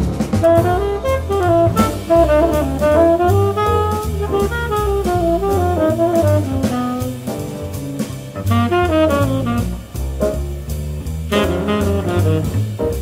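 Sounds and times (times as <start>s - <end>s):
drum kit with cymbal strokes: 0.0s - 13.0s
walking double bass: 0.0s - 13.0s
tenor saxophone melody: 0.4s - 7.4s, 8.4s - 10.0s, 11.3s - 12.8s.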